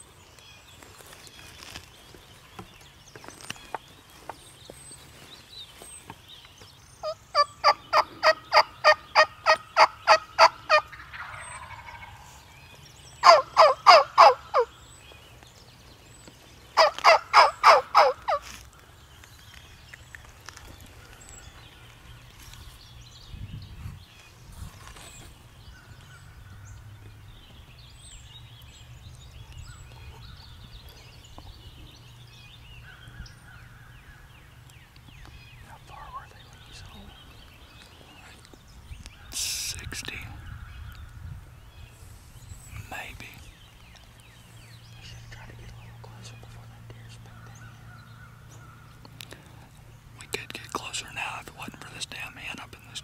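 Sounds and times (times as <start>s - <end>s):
turkey yelping: 7.0s - 12.2s, 13.2s - 14.7s, 16.8s - 18.4s.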